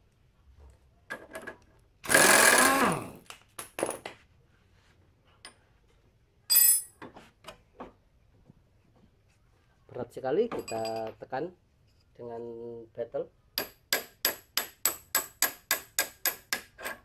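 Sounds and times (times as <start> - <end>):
impact wrench bursts: 2.0 - 3.2
metal clinks: 6.5 - 7.0, 10.5 - 11.1.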